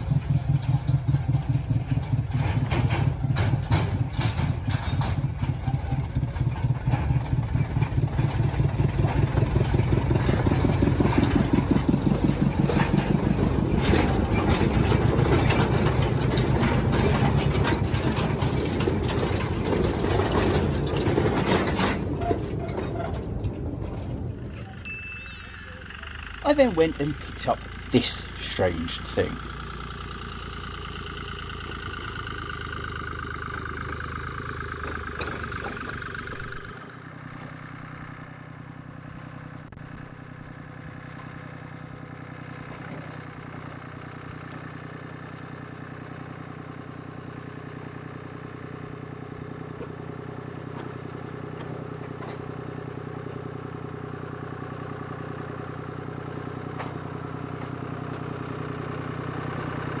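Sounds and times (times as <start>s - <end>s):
locomotive engine running: 0.0s - 60.0s.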